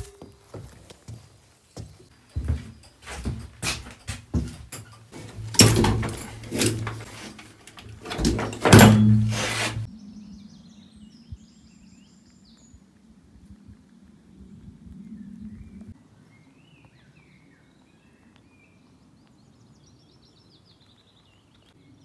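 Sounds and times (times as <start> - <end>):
metal hooks clanking: 2.8 - 9.9.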